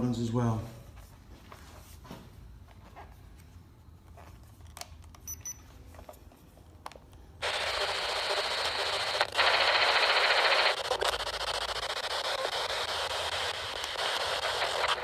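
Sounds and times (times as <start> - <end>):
radio static hiss: 7.4 - 15.0.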